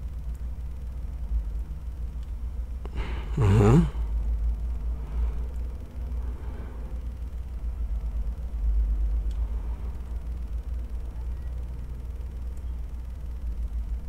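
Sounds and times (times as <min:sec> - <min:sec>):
low steady rumble: 0:00.0 - 0:14.0
faint clicks: 0:09.2 - 0:09.5.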